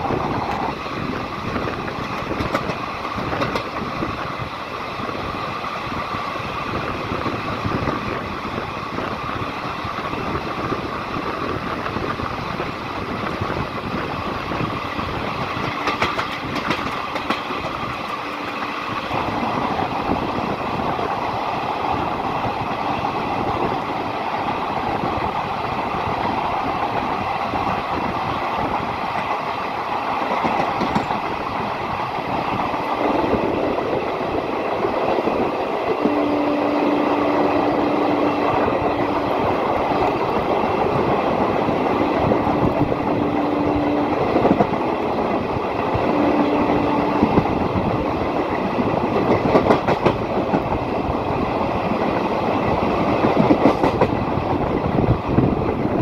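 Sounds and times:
train wheels rumbling on rails: 0:00.0 - 0:56.0
steady tone: 0:32.7 - 0:48.7.

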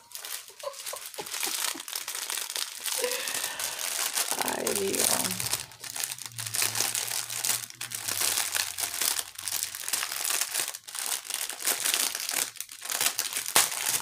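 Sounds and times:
plastic packaging crinkling: 0:00.0 - 0:14.0.

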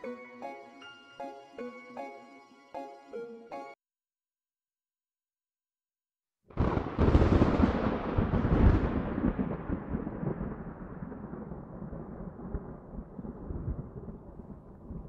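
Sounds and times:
thunder crack and rumble: 0:06.5 - 0:15.0.

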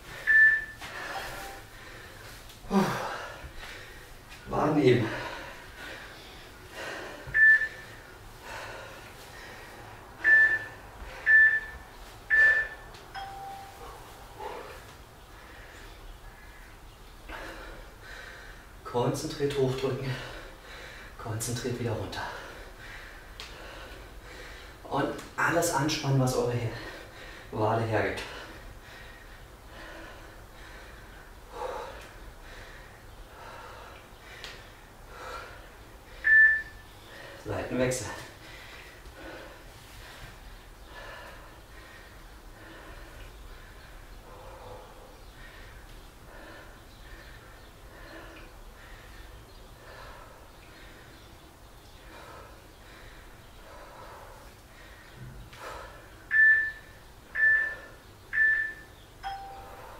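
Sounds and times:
heavy breathing: 0:00.0 - 0:11.7, 0:13.8 - 0:18.8, 0:19.9 - 0:21.2, 0:22.1 - 0:24.9, 0:26.6 - 0:27.6, 0:28.2 - 0:37.5, 0:38.1 - 0:58.2
timer beeps: 0:00.2 - 0:01.6, 0:07.3 - 0:07.8, 0:10.2 - 0:14.0, 0:36.2 - 0:36.8, 0:56.3 - 0:59.9
long low timer tone: 0:10.2 - 0:14.0, 0:58.4 - 0:59.9.

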